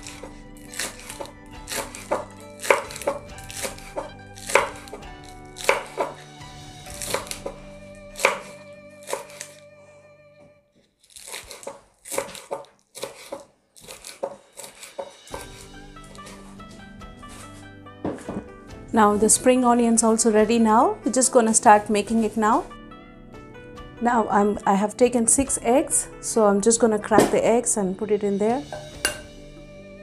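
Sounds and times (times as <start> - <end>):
knife chopping on wooden board: 0.0 - 6.2, 6.9 - 7.6, 8.2 - 9.5, 11.2 - 16.5, 17.3 - 18.5, 28.7 - 29.3
background music: 0.0 - 10.7, 13.9 - 30.0.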